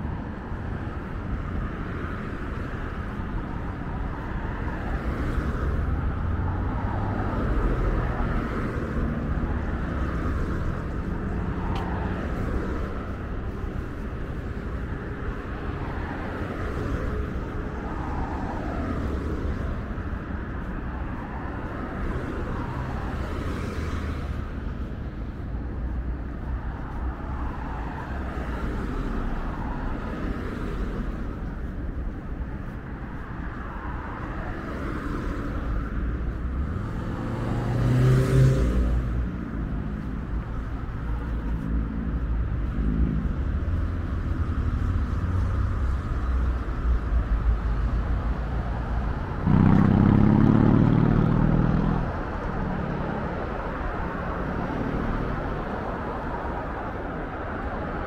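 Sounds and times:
steady rumble of cars: 0.0 - 58.0
vehicle passing close: 36.6 - 40.3, 47.6 - 55.6.

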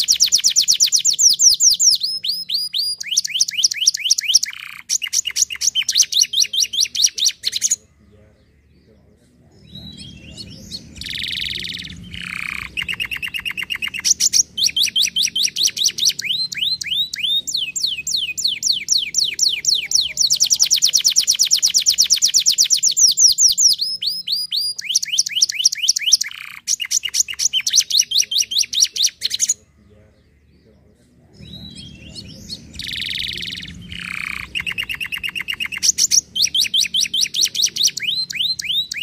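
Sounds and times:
canary singing trills: 0.0 - 39.0.

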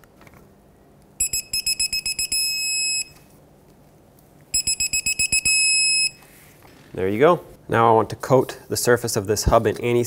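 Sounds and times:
torque wrench quick beeps: 1.2 - 3.2, 4.6 - 6.2.

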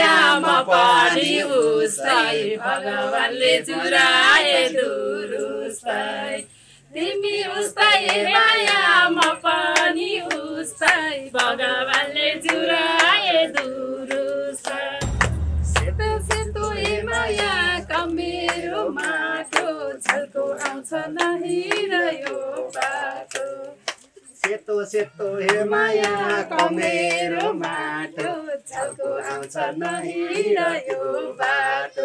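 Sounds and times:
woman singing folk song: 7.0 - 15.0, 16.8 - 23.9
hand clapping: 8.0 - 24.6, 25.4 - 31.6.

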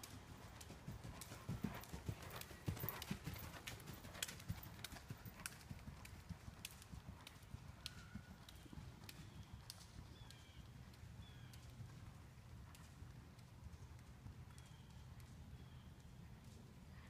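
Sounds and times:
horse hoofbeats on sand: 0.0 - 10.6.

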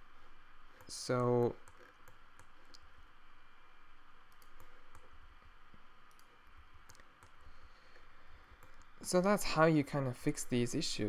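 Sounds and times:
faint steady hiss: 0.0 - 11.0
computer mouse clicks: 0.8 - 2.9, 4.3 - 5.1, 6.1 - 7.4, 8.5 - 8.9.

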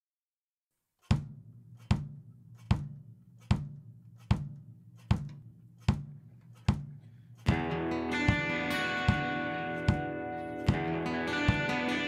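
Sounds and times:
kick drum beats: 1.1 - 11.8.

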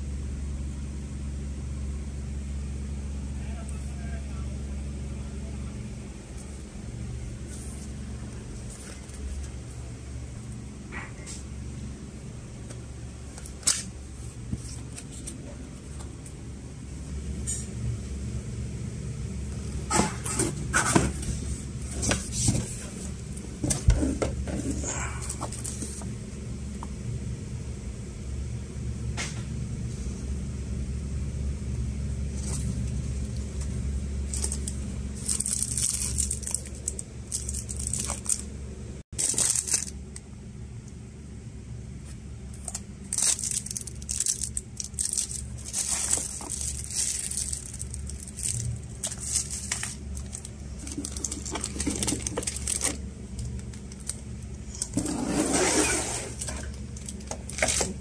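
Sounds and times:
steady low hum: 0.0 - 58.0
packaging rustling and crinkling: 7.4 - 9.8, 19.6 - 26.1, 32.3 - 38.6, 39.2 - 40.0, 42.0 - 58.0.

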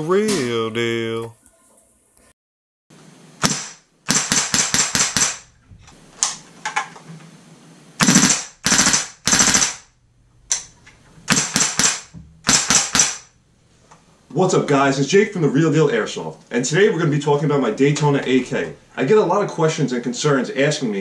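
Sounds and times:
airsoft gun shots: 3.4 - 5.5, 8.0 - 9.9, 11.3 - 13.3.

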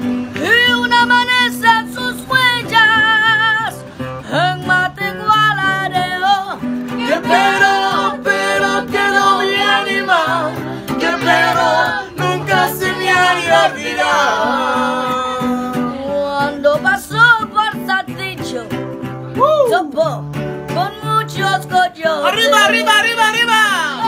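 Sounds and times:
acoustic guitar strumming: 0.0 - 24.0
person singing without words: 0.4 - 18.7.

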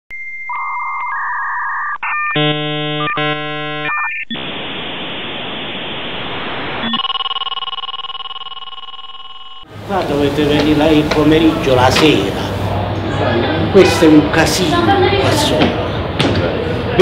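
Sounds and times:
modem answer tone: 0.1 - 4.3, 6.8 - 9.7
warbling chirps: 0.1 - 6.2, 6.8 - 9.7
buzzing tone chords: 0.1 - 9.9
loud modem hiss: 2.6 - 7.2, 9.7 - 12.9.

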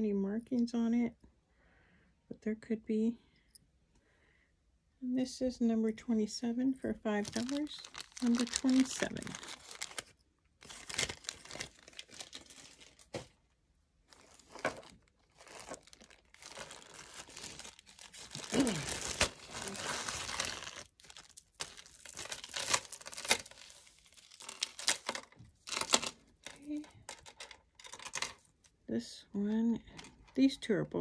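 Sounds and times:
plastic bag crinkling: 7.1 - 13.3, 14.1 - 28.5.

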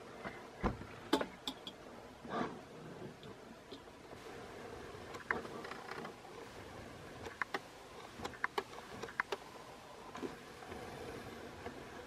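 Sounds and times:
sharp irregular clicks: 5.1 - 6.2, 7.2 - 9.4.

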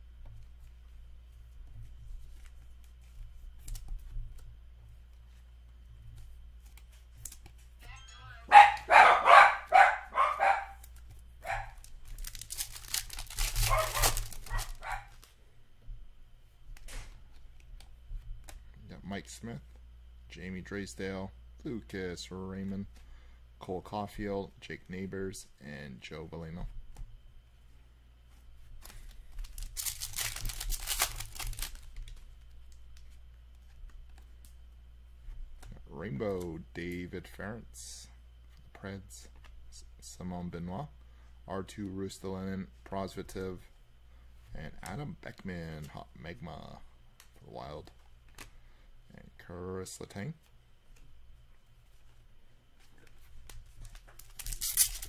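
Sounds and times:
faint clicks of cards handled: 1.8 - 7.8, 28.3 - 34.6, 47.2 - 48.6
dog barking: 8.5 - 10.8, 11.4 - 11.8, 13.7 - 15.1
foil wrapper crinkling and tearing: 10.9 - 15.3, 28.8 - 32.2, 53.8 - 55.0.

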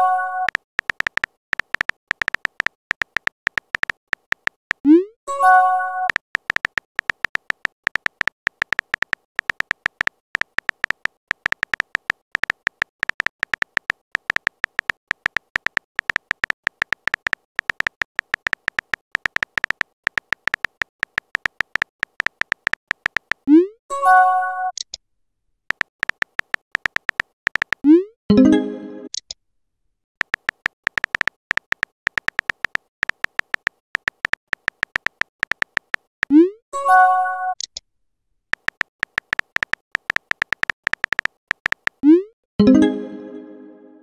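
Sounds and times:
synthetic key-tap ticks: 0.4 - 5.1, 6.0 - 23.7, 25.7 - 28.0, 30.2 - 36.5, 38.5 - 42.7.

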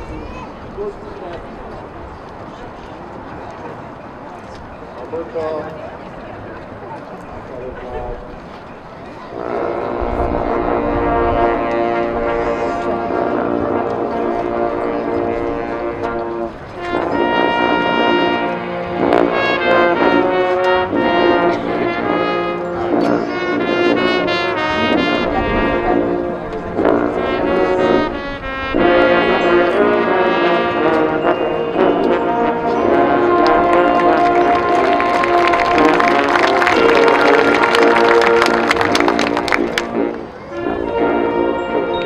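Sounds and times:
brass band chords: 9.3 - 42.0
percussion strokes: 11.6 - 14.1.

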